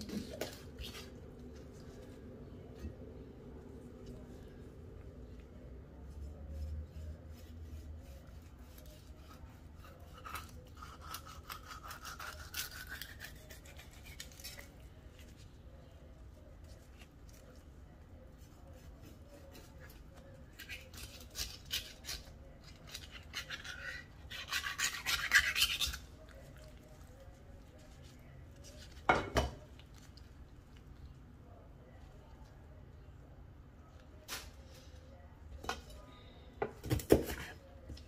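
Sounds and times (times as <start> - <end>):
knife sawing through fish: 7.0 - 14.6, 20.6 - 26.1.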